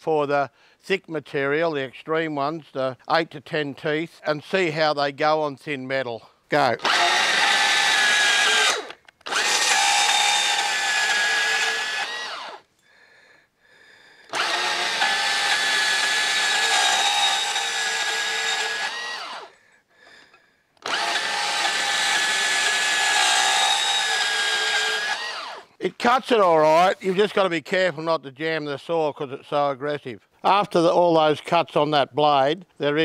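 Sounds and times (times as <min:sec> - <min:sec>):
bandsaw cutting steel: 0:06.7 - 0:12.7, 0:14.2 - 0:25.8.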